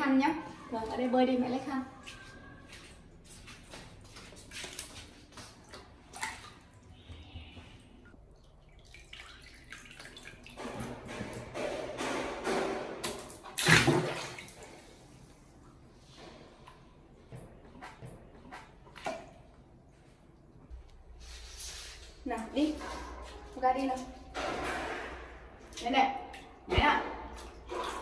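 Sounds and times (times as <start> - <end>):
water splashing in a plastic basin: 1.9 - 7.2, 8.1 - 15.1, 23.6 - 28.0.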